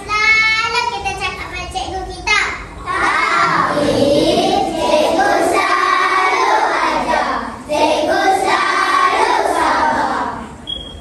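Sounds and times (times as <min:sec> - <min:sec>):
children singing in unison: 0:02.8 - 0:10.6.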